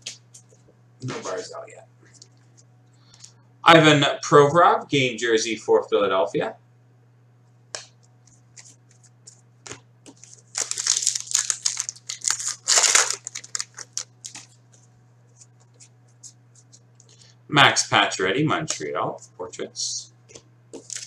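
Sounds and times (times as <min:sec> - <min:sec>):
cards handled between fingers: 0:07.7 - 0:10.8, 0:13.3 - 0:17.2
foil wrapper tearing and crinkling: 0:10.1 - 0:14.6, 0:20.8 - 0:21.0.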